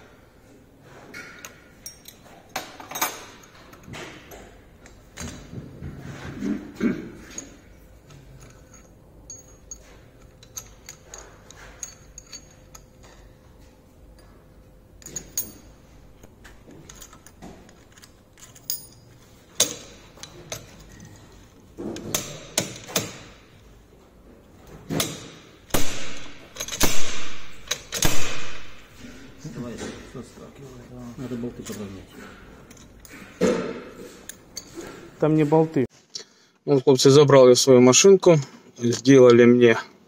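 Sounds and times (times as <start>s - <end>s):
light metal clinks: 1.2s - 4.4s, 8.4s - 13.4s, 16.9s - 21.2s.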